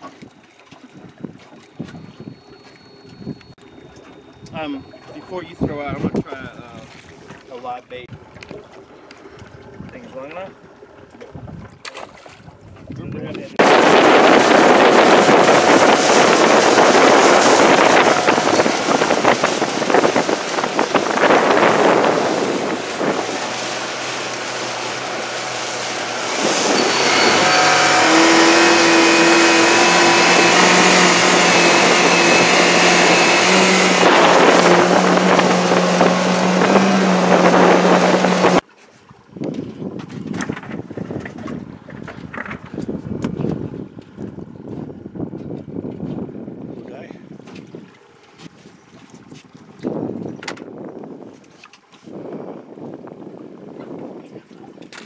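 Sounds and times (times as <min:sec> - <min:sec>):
outboard motor running: 0:00.0 - 0:55.0
water noise: 0:00.0 - 0:55.0
wind noise: 0:11.2 - 0:11.8, 0:12.4 - 0:38.6, 0:39.3 - 0:47.9, 0:49.2 - 0:55.0.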